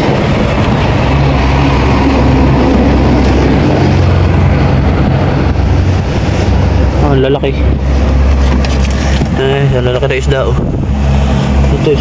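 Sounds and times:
engine humming: 0.0 - 12.0
noisy rumble: 0.0 - 12.0.

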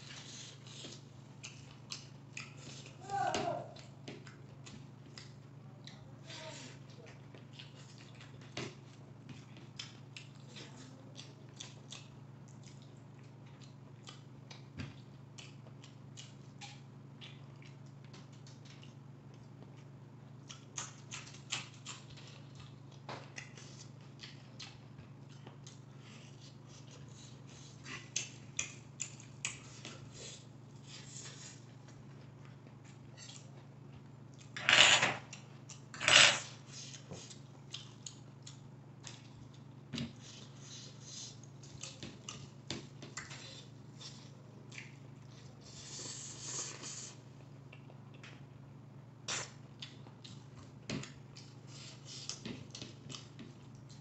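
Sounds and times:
steady low hum: 0.0 - 54.0
wet chewing and lip smacks: 0.6 - 2.8, 9.5 - 19.5, 36.9 - 39.7, 43.2 - 45.4, 49.3 - 54.0.

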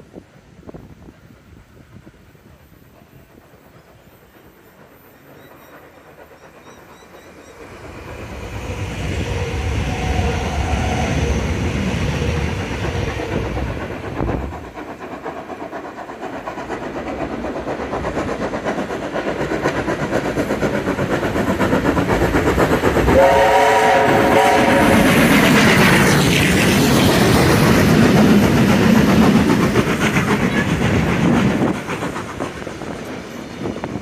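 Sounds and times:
electric train low rumble: 0.0 - 34.0
steam locomotive exhaust beats: 0.0 - 34.0
steam whistle chord: 23.1 - 25.1.

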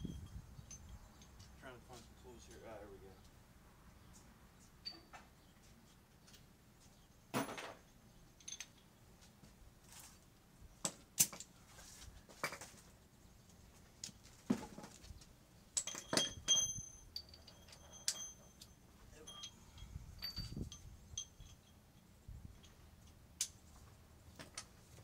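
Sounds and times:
metal hand tools clinking: 15.8 - 22.8.

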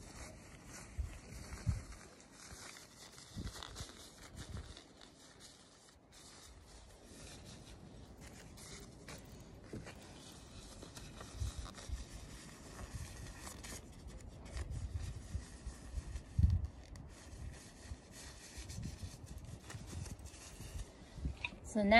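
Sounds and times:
plastic glove rustling: 0.0 - 21.9.

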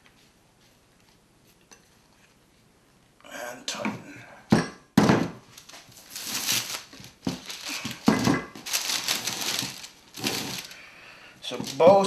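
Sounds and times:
sheet rustling and crinkling: 5.4 - 12.0.

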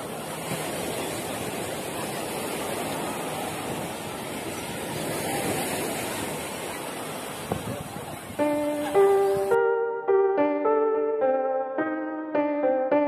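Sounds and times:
waves breaking on beach: 0.0 - 9.6.

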